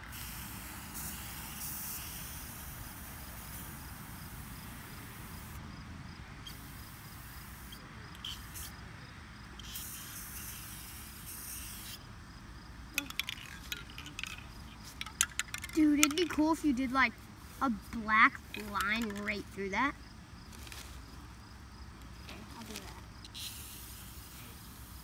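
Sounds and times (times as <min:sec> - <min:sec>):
spray can hissing: 0:00.0 - 0:05.6, 0:06.5 - 0:08.7, 0:09.6 - 0:12.0, 0:23.2 - 0:25.0.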